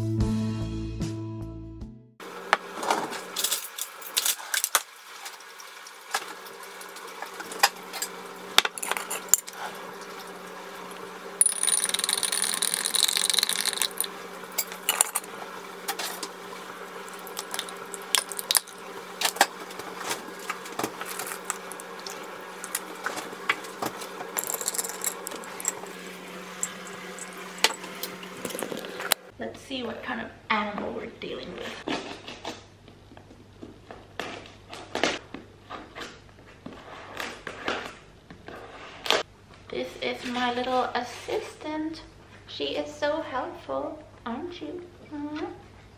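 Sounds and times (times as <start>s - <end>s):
glass and metal clinking: 11.4s - 15.3s, 17.1s - 18.8s, 21.0s - 22.9s, 24.4s - 29.2s
stirring in a glass: 11.4s - 15.3s, 17.1s - 18.8s, 21.0s - 23.1s, 24.4s - 26.0s, 26.6s - 29.2s.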